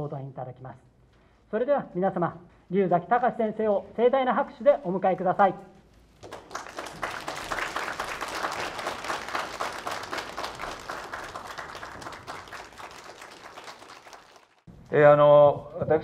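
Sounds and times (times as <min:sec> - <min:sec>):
audience applauding: 0:06.2 - 0:14.7.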